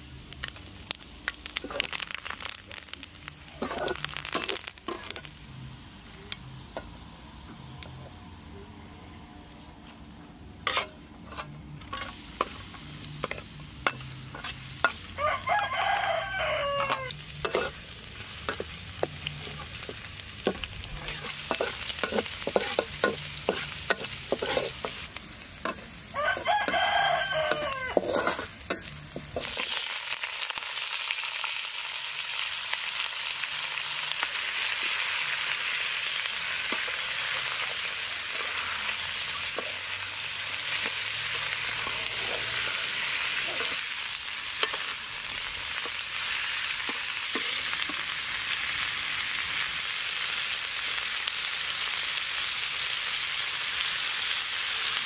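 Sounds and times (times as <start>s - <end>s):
garlic frying in oil: 0.0s - 8.1s, 10.1s - 55.0s
loud sizzle in hot oil: 0.0s - 8.5s, 9.5s - 55.0s
metal spatula scraping pan: 10.6s - 12.6s, 13.2s - 15.1s, 16.8s - 29.8s
rooster crowing: 15.1s - 17.3s, 26.1s - 28.3s.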